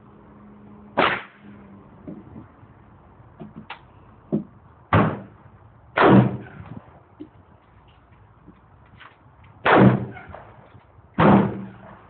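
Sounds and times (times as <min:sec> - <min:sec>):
loud gunshots with echo: 0:01.0 - 0:01.4, 0:06.0 - 0:06.6, 0:09.6 - 0:10.3, 0:11.2 - 0:11.8.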